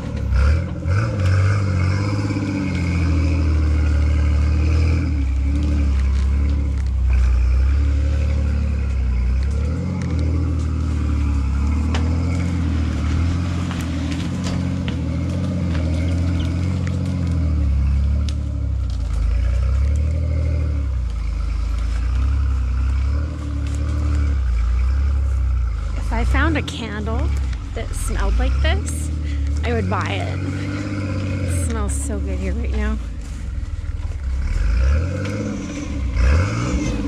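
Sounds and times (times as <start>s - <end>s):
off-road vehicle engine at low revs: 0.0s - 37.0s.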